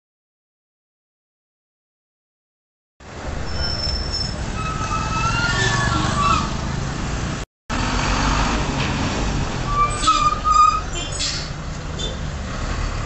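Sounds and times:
car engines passing: 3.0 - 13.0
low road rumble: 3.0 - 13.0.

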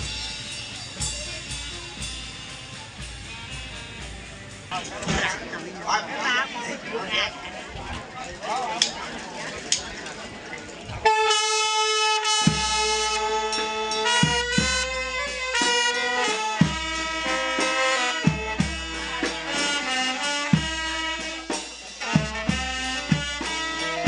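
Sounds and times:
bass drum beats: 0.0 - 5.4, 12.5 - 15.8, 18.2 - 19.5, 20.5 - 24.0
brass band playing melody: 0.0 - 7.2, 11.0 - 24.0.

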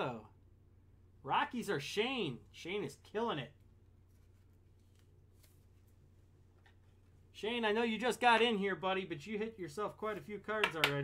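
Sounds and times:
low electrical hum: 0.0 - 11.0
card and plastic sleeve rustle: 3.5 - 7.3.

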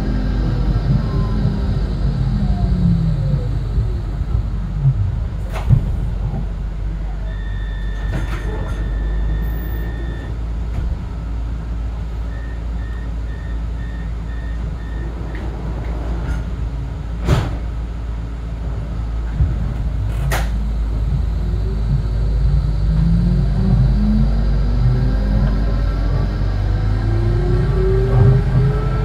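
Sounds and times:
tram equipment humming: 0.0 - 29.0
tram motor whine rising: 0.0 - 29.0
door warning beeps: 7.1 - 10.4, 12.3 - 15.4.

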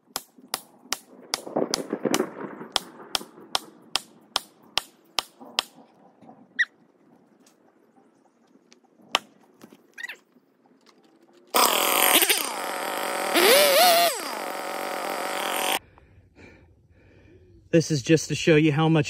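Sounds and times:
chainsaw engine revving: 11.5 - 15.8.

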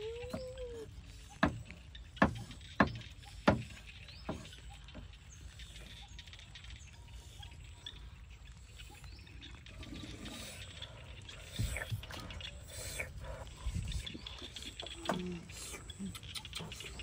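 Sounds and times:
cleaver chopping on wooden board: 2.2 - 3.7.

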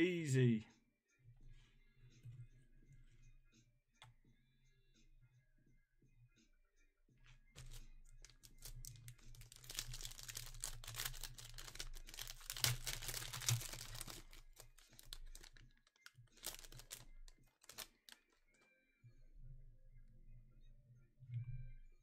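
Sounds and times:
foil wrapper crinkling: 7.6 - 18.3.

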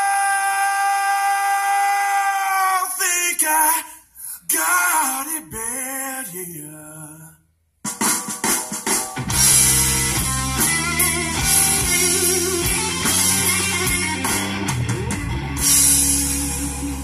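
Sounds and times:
rock music on car stereo: 8.2 - 17.0.

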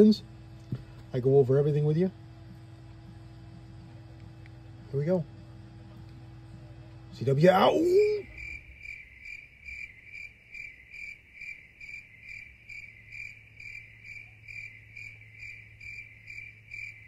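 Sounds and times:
faint low hum: 0.0 - 17.0
cricket chirping: 7.6 - 17.0.

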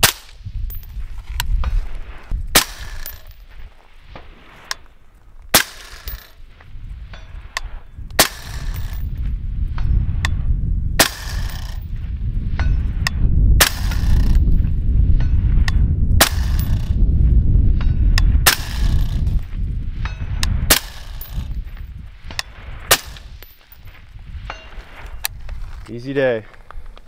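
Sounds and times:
suppressed rifle shots: 2.5 - 4.9, 5.5 - 6.6, 7.6 - 9.1, 11.0 - 11.8, 13.6 - 14.4, 16.2 - 17.0, 18.4 - 19.4, 20.7 - 21.4, 22.3 - 24.0
bullets ringing on steel plate: 20.0 - 21.7.

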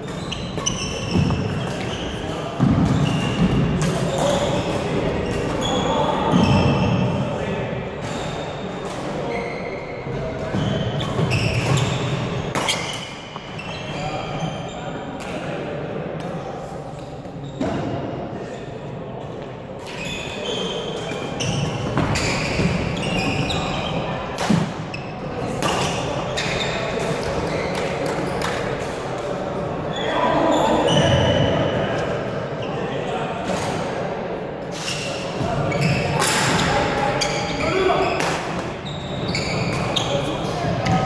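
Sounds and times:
shoes squeaking on wooden floor: 0.0 - 4.7, 9.3 - 14.8, 21.4 - 24.2, 34.8 - 38.2, 38.8 - 41.0.

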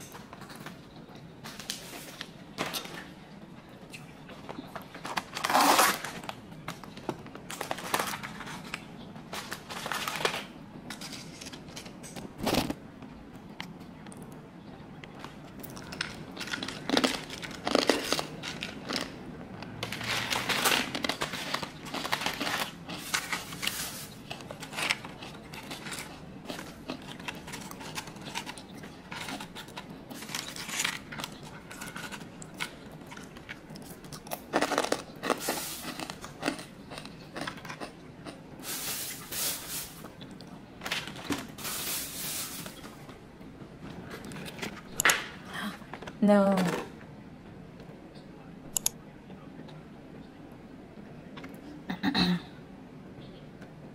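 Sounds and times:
plastic packaging crinkling: 4.9 - 12.8, 19.8 - 36.6.

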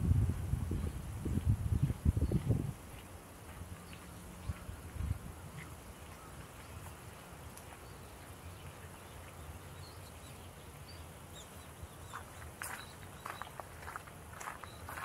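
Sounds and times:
footsteps on gravel: 1.4 - 9.4, 11.8 - 15.0.

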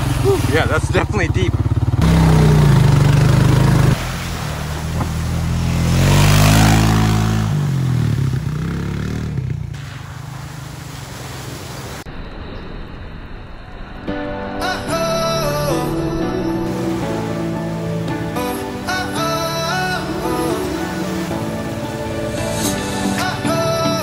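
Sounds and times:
off-road vehicle engine revving: 0.0 - 9.8
water rushing and splashing: 0.0 - 24.0.

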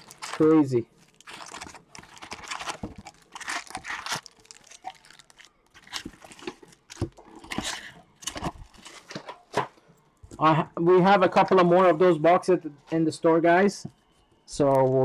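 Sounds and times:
foil packs crinkling and tearing: 0.0 - 9.4.

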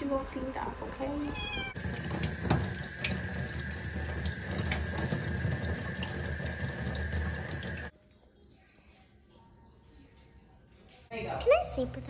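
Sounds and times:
tap water running: 1.6 - 7.9.

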